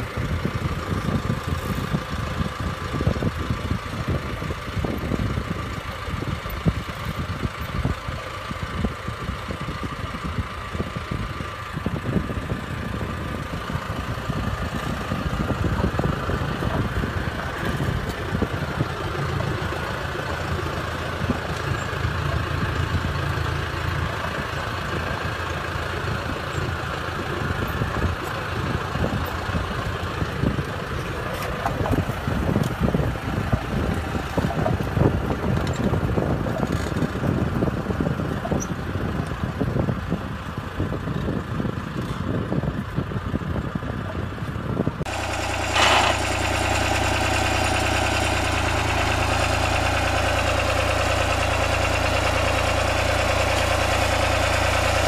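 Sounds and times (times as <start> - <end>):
engine running: 0.0 - 55.0
rattling and clatter: 11.9 - 40.0, 44.7 - 55.0.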